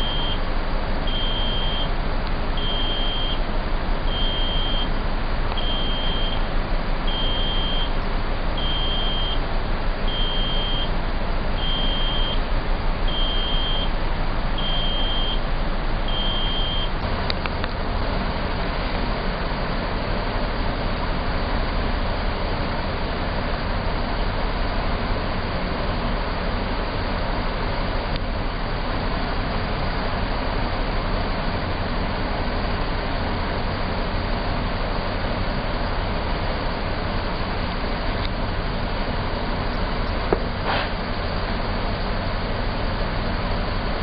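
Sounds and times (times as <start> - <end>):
high-pitched warning beeper: 0.0 - 0.5, 1.1 - 1.9, 2.6 - 3.4, 4.1 - 5.0, 5.6 - 6.4, 7.1 - 8.0, 8.6 - 9.4, 10.1 - 10.9, 11.6 - 12.5, 13.1 - 14.0, 14.6 - 15.4, 16.1 - 17.0
crane machinery droning: 0.0 - 44.0.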